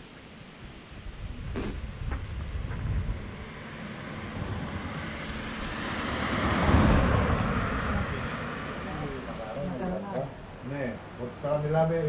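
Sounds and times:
wind noise on microphone: 0.6 - 3.6
passing vehicle rumble: 1.8 - 12.0.

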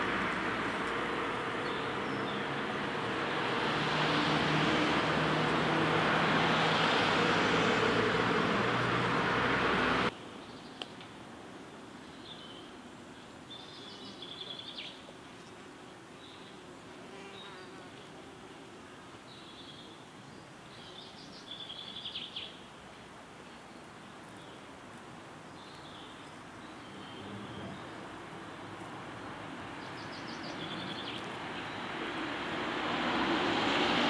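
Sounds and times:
traffic noise with low hum: 0.0 - 11.2, 24.2 - 34.0.

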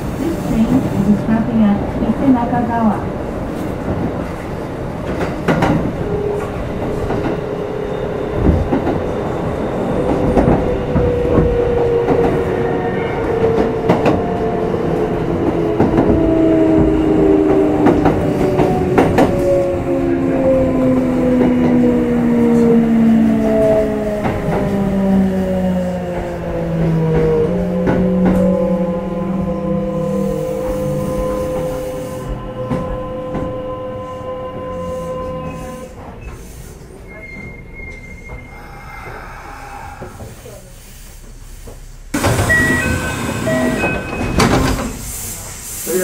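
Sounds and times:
electric train rumble with motor whine: 8.4 - 46.0.

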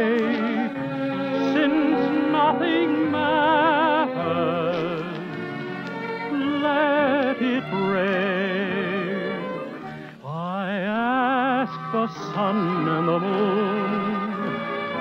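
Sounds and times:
man singing slow ballad: 10.2 - 14.0.

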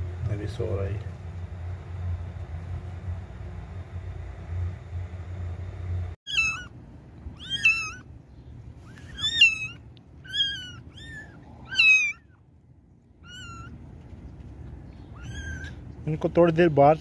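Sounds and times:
low steady hum: 0.0 - 17.0
kittens mewing: 6.3 - 8.1, 8.8 - 12.4, 13.2 - 13.8, 15.0 - 15.9.

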